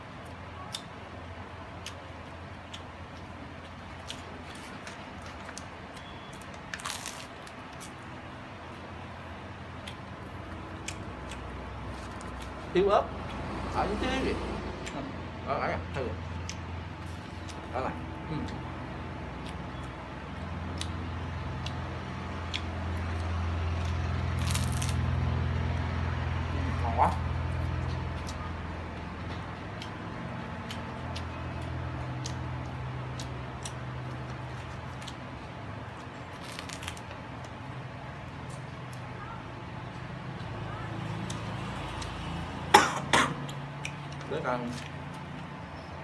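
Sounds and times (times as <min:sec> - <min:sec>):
chewing crusty bread: 0:00.1 - 0:13.7, 0:18.4 - 0:26.5, 0:27.1 - 0:42.6, 0:43.3 - 0:46.0
crackle of paper wrapper: 0:06.3 - 0:07.9, 0:24.4 - 0:25.0, 0:36.4 - 0:37.1.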